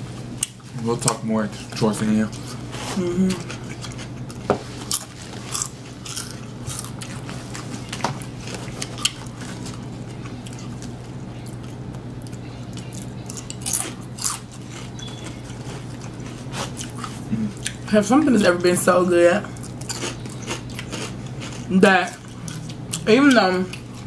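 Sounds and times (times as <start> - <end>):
low hum: 1.4 - 24.0
chips being chewed: 3.3 - 17.8, 19.5 - 24.0.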